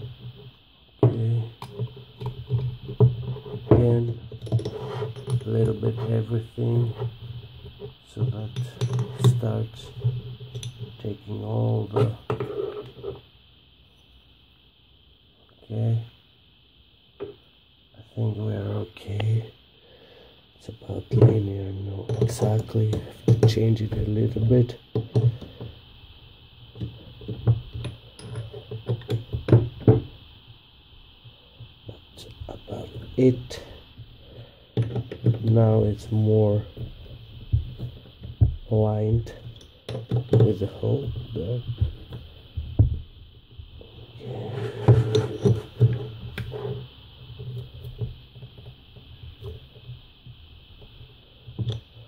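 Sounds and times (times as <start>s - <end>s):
steady low hum: 0.0s - 52.0s
screwdriver tapping metal parts: 8.6s - 9.4s, 22.0s - 24.1s, 27.7s - 29.6s.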